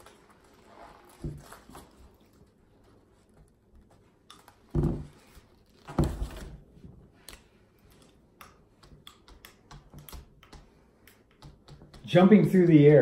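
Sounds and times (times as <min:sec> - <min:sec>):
paper plate and marker clicks: 0:07.2 - 0:12.1.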